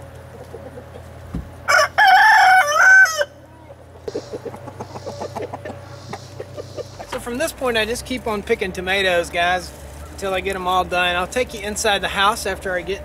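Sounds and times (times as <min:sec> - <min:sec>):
hens pecking ticks: 0:00.0 - 0:01.4, 0:03.7 - 0:08.2
hens clucking: 0:00.0 - 0:10.6
rooster crowing: 0:01.6 - 0:03.4.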